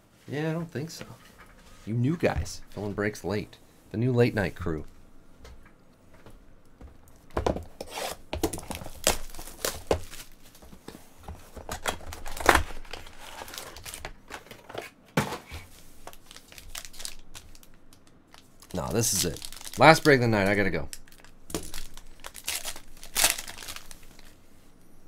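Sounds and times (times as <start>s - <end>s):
foil packs crinkling: 8.4s - 10.7s, 11.5s - 14.7s, 15.8s - 24.4s.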